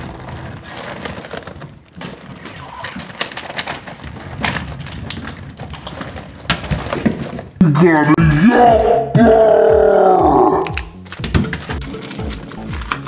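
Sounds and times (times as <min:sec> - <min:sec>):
foil wrapper crinkling: 0:00.0 - 0:07.6, 0:10.9 - 0:13.0
squishy ball squishing: 0:00.0 - 0:07.7, 0:10.3 - 0:13.0.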